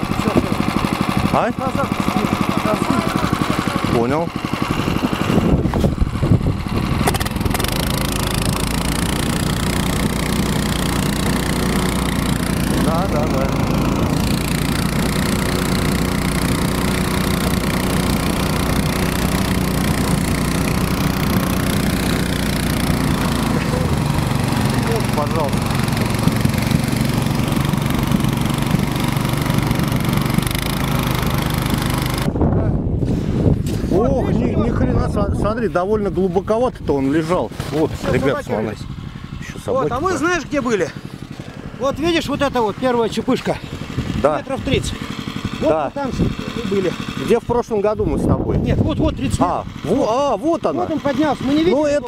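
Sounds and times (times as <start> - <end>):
snow machine engine running: 0.0 - 52.0.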